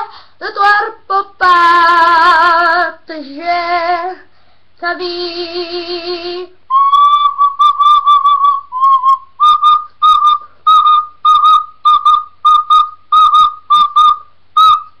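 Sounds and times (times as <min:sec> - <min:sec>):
recorder playing short notes: 0:06.7 - 0:15.0.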